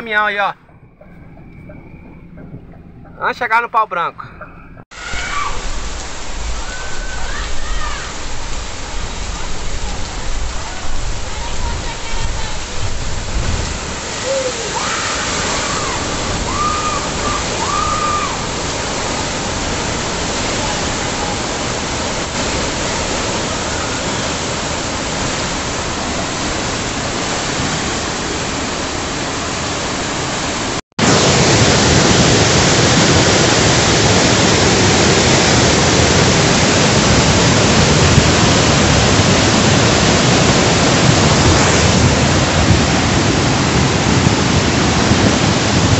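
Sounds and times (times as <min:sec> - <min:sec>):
floodwater running: 0:04.9 - 0:45.9
heavy rain: 0:04.9 - 0:45.9
water pouring through floodgates: 0:05.0 - 0:45.9.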